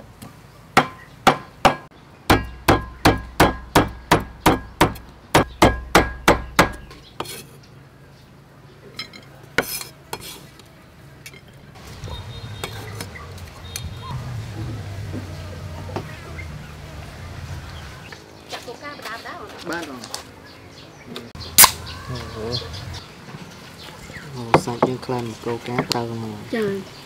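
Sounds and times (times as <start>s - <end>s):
cleaver chopping on wooden board: 0.8s - 7.0s.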